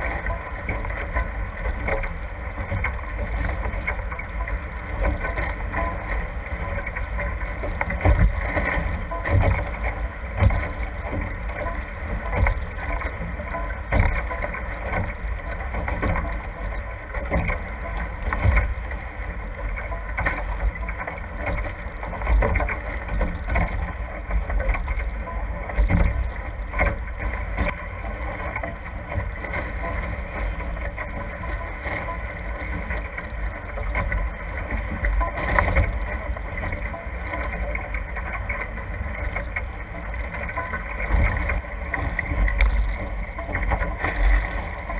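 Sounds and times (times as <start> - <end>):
water rushing past hulls: 0.0 - 44.9
wind rumbling on microphone: 0.0 - 44.9.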